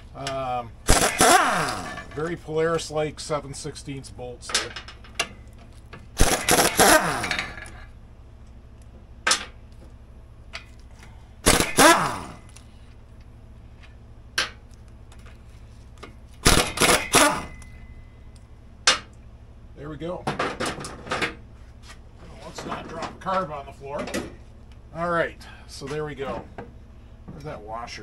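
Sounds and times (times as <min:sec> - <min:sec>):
cordless power tool whining: 0:00.8 - 0:02.1, 0:06.2 - 0:07.8, 0:11.4 - 0:12.6, 0:16.4 - 0:17.8.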